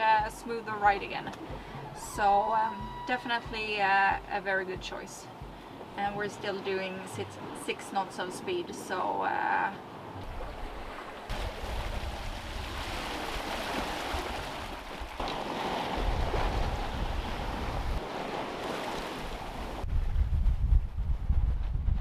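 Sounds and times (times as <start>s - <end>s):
water rushing along a hull: 0.0s - 19.9s
wind rumbling on microphone: 10.1s - 22.0s.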